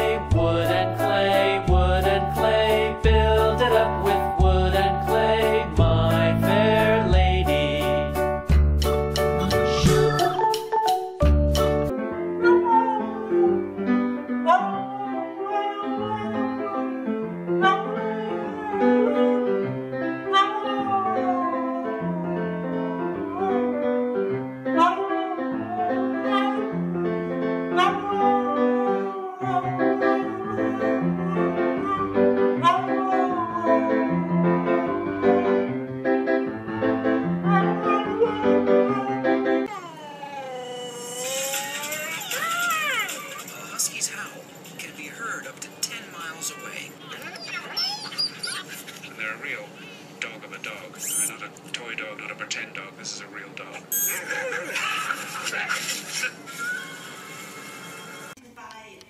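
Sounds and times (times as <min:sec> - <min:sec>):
piano chords: 0:00.0 - 0:39.7
husky howling: 0:14.4 - 0:17.0, 0:17.6 - 0:19.6, 0:20.3 - 0:23.8, 0:24.8 - 0:26.8, 0:27.8 - 0:35.4, 0:37.4 - 0:39.5.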